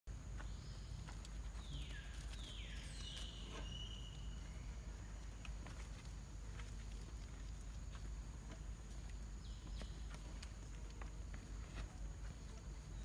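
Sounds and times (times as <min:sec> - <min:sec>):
falling whistled bird calls: 0:01.7 - 0:04.8.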